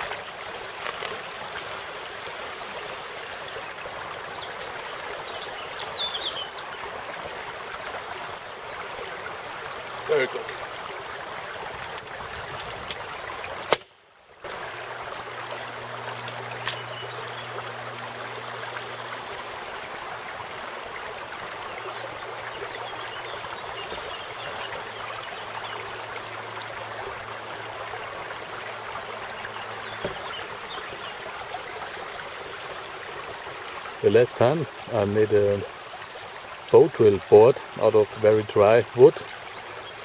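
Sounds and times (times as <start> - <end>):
mountain stream running: 0.0 - 40.0.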